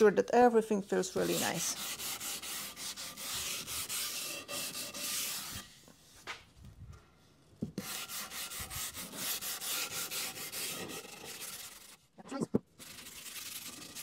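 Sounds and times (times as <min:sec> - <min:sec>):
sanding block strokes on wood: 0:00.7 - 0:05.8, 0:07.8 - 0:12.0, 0:12.8 - 0:14.0.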